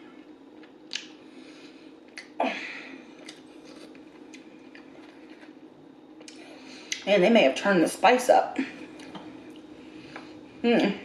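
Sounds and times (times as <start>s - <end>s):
person chewing food: 3.1s - 7.0s.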